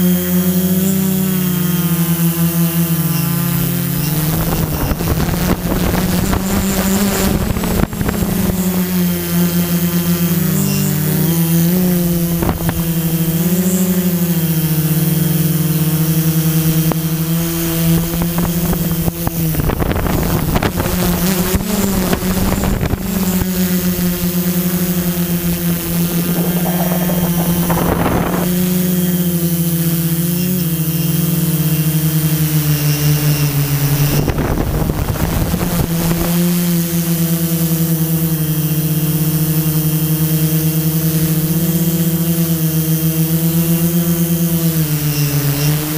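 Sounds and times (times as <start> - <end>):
wind buffeting microphone: 21.6 - 29.1
drone propellers buzzing: 22.0 - 29.3.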